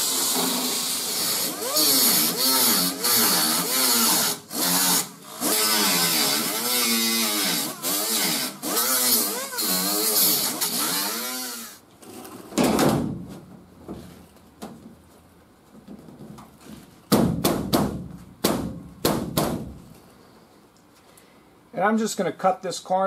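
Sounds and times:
cut-off wheel grinding sheet metal: 0:00.0 - 0:11.8
sheet metal knocks and rustles: 0:12.5 - 0:15.0.

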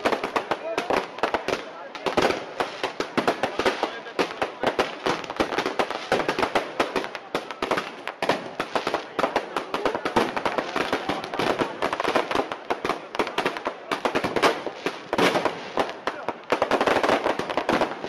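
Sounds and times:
fireworks crackling and popping: 0:00.0 - 0:18.0.

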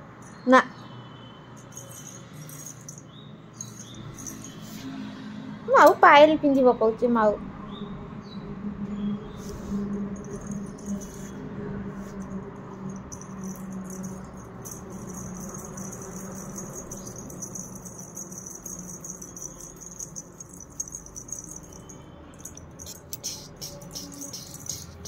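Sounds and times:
anklet bells jingling: 0:01.5 - 0:05.0, 0:09.3 - 0:25.0.

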